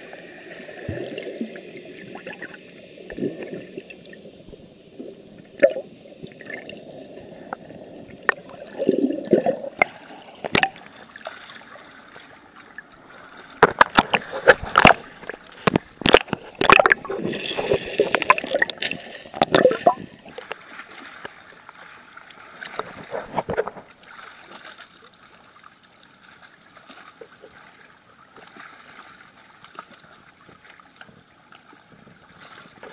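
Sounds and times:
seawater sloshing and splashing: 0:08.2 - 0:32.9.

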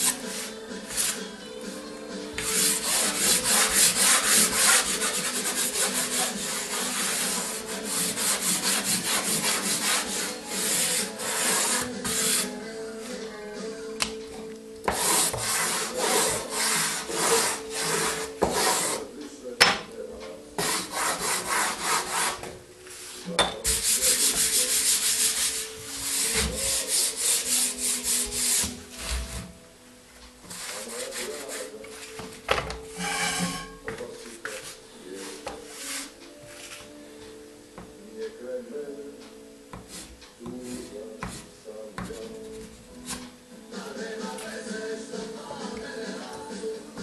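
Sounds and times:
pastel rubbing on paper: 0:00.0 - 0:01.2, 0:02.4 - 0:12.5, 0:14.9 - 0:19.0, 0:20.6 - 0:22.4, 0:23.0 - 0:28.7, 0:30.5 - 0:32.3, 0:34.5 - 0:36.8, 0:39.8 - 0:41.5.

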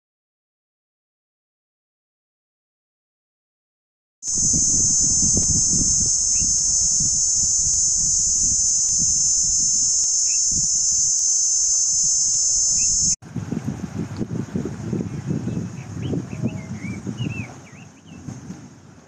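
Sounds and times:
cicadas droning: 0:04.2 - 0:13.2.

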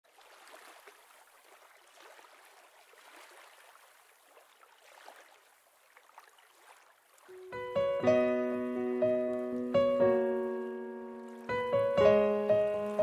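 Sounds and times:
faint moving water trickling: 0:00.1 - 0:07.7, 0:09.0 - 0:11.8.

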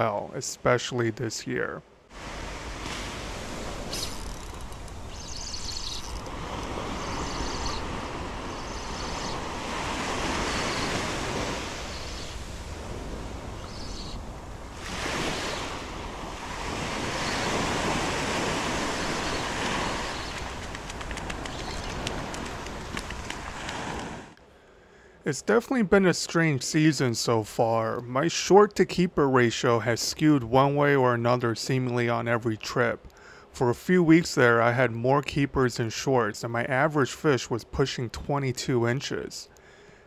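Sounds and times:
surf washing up a beach: 0:02.1 - 0:24.4.

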